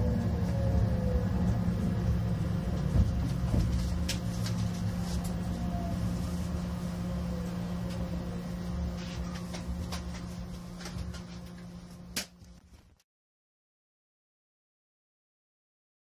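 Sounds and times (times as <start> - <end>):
faint gliding whine: 0.0 - 12.0
train rumble and hum: 0.0 - 12.0.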